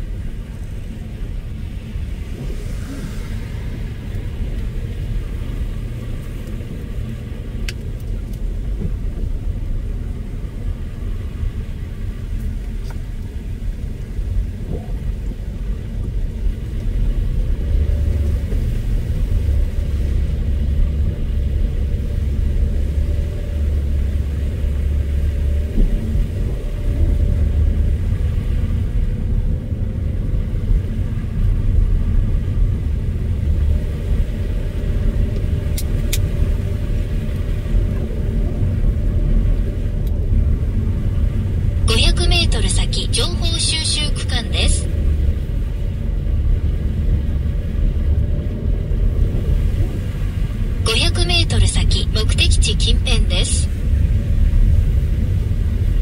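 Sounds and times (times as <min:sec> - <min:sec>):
car tyres and engine rumbling: 0:00.0 - 0:53.0, 0:53.6 - 0:56.0.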